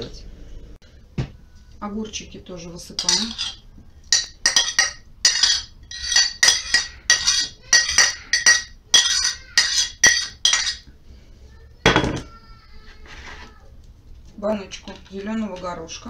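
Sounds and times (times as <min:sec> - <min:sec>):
metal utensil scraping a plate: 0:03.0 - 0:10.9.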